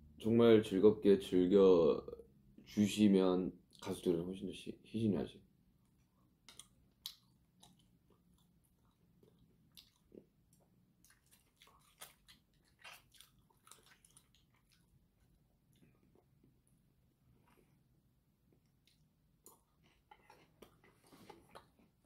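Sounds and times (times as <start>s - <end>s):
chewing: 6.1s - 16.5s, 18.5s - 22.0s.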